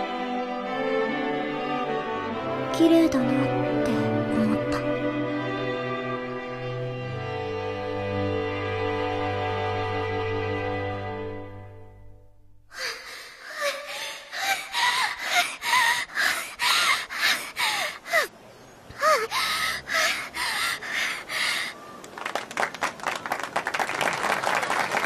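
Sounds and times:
girl panting: 12.7s - 21.8s
crowd clapping: 22.0s - 25.0s.

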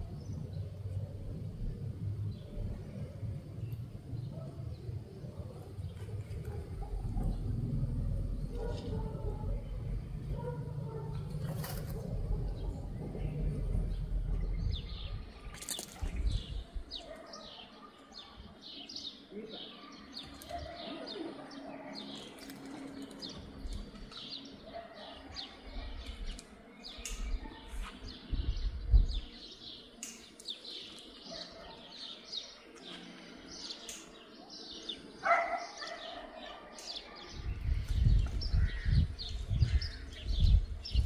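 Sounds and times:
low rumbles: 0.0s - 16.9s
small birds chirping: 0.0s - 41.0s.

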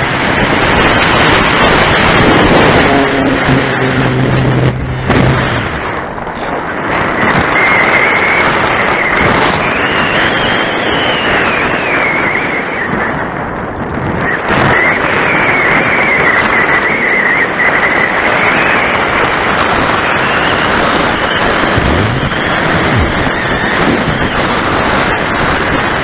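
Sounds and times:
wind rushing over microphone: 0.0s - 26.0s
high whistle varying in pitch: 0.7s - 13.0s, 19.8s - 26.0s.

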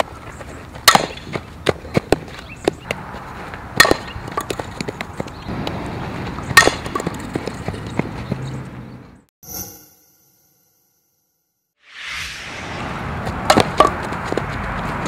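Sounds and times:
bat striking softball: 0.8s - 3.0s, 3.7s - 5.4s, 6.5s - 7.6s, 13.5s - 14.1s.

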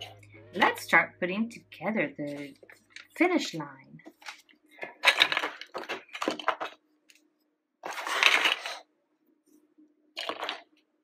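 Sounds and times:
plastic bricks clicking and clattering: 4.2s - 7.2s, 7.8s - 8.8s, 10.2s - 10.8s.

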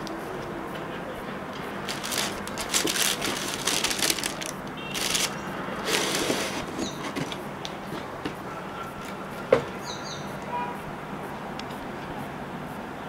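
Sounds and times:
tissue paper rustling: 1.8s - 7.4s
cardboard box scraping: 1.9s - 7.4s.

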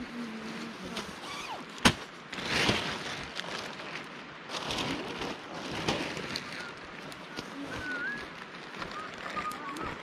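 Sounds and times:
tent fabric rustling: 0.0s - 10.0s.

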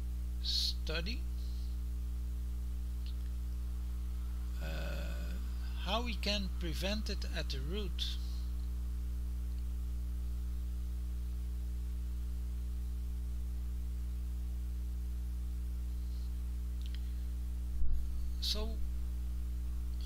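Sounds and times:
low electrical hum: 0.0s - 20.0s
person speaking: 0.4s - 1.3s, 4.6s - 8.3s, 18.4s - 18.9s.

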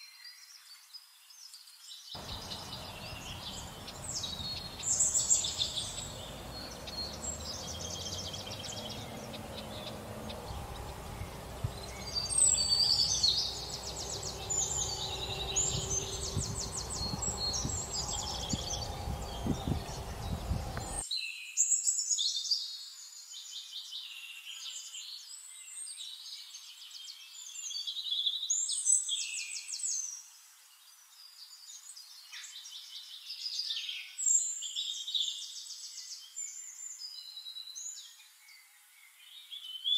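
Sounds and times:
small birds chirping: 0.0s - 21.4s
low background noise: 2.2s - 21.0s.

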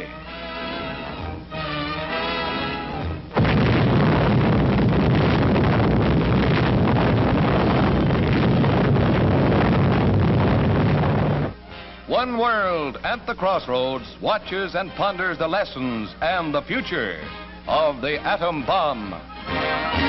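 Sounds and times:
orchestral music: 0.0s - 3.4s, 17.0s - 20.0s
explosion roar rumbling: 3.3s - 11.6s.

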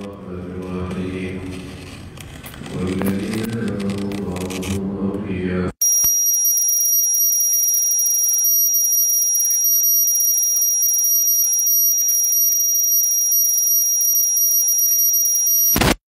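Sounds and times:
high-pitched electronic whine: 5.8s - 16.0s.

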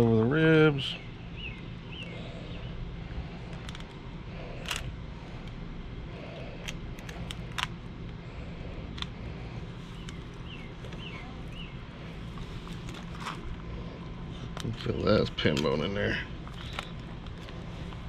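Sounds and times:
low background hum: 0.0s - 18.0s.

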